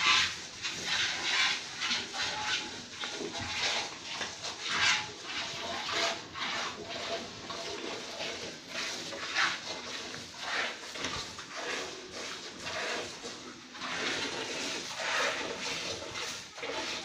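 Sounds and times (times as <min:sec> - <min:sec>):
milk squirting into metal pail: 0:05.4 - 0:17.0.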